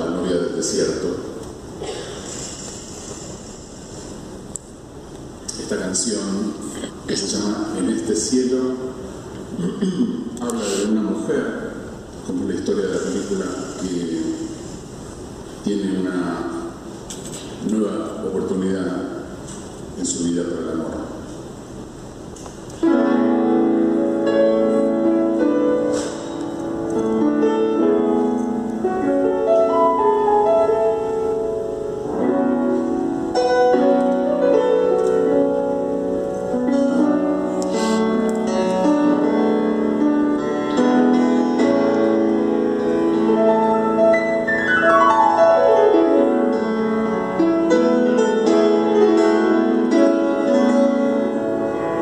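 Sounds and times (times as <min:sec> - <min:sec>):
solo grand piano: 0:22.8 - 0:52.0.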